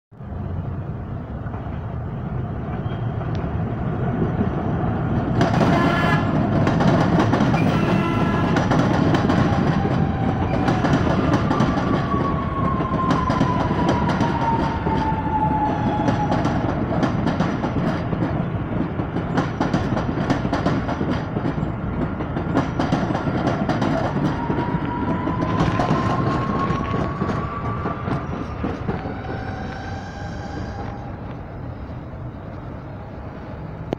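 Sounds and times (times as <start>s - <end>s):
train wheels rumbling over rail joints: 0.2s - 33.9s
train horn: 5.6s - 6.5s, 7.6s - 8.8s
train motor whine: 24.3s - 31.5s.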